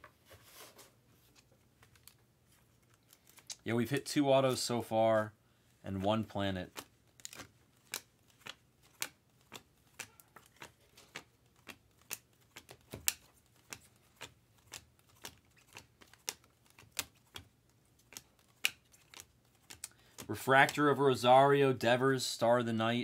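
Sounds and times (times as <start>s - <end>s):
cards flicking clicks: 6.7s - 20.9s.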